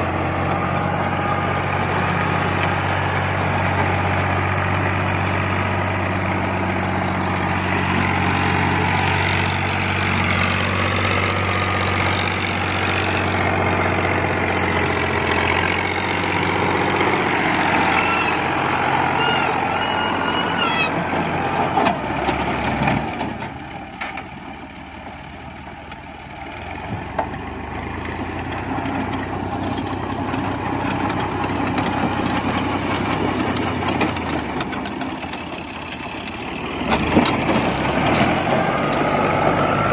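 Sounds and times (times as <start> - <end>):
diesel tractor engine under load: 0.0 - 39.9
rotavator blades churning soil: 26.6 - 39.9.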